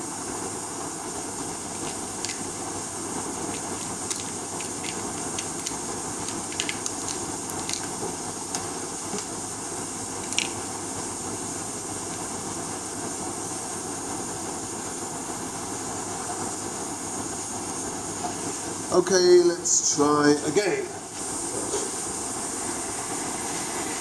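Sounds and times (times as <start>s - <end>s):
compressed air hissing: 21.1s - 24.0s.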